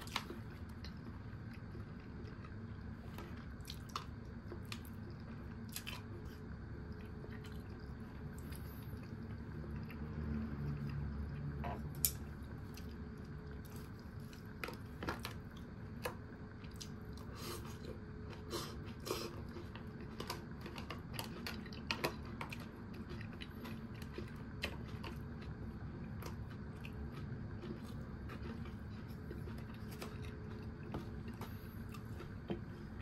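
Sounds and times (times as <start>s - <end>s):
person chewing and biting food: 16.6s - 33.0s.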